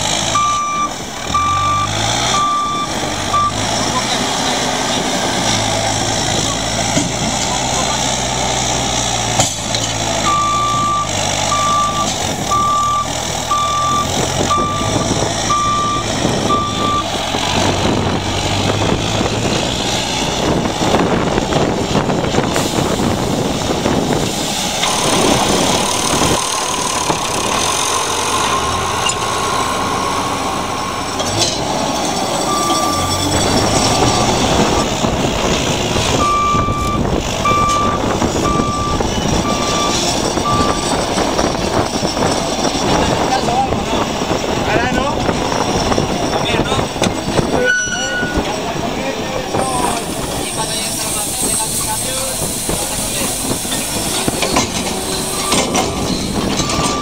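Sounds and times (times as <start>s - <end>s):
diesel engine running: 0.0s - 57.0s
reversing alarm beeping: 0.3s - 4.1s, 10.2s - 17.2s, 24.8s - 35.0s, 36.2s - 41.0s, 54.0s - 57.0s.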